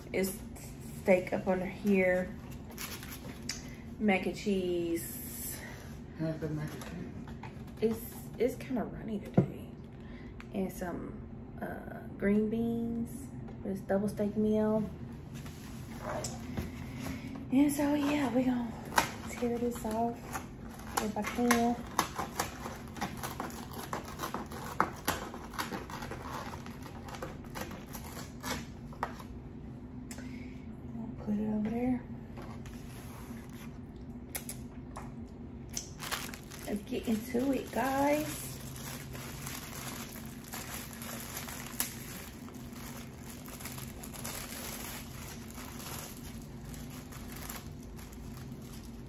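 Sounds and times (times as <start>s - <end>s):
plastic wrapper crinkling and tearing: 2.4s - 3.8s, 18.0s - 29.3s, 35.7s - 49.0s
foam container crackling and creaking: 36.0s - 49.0s.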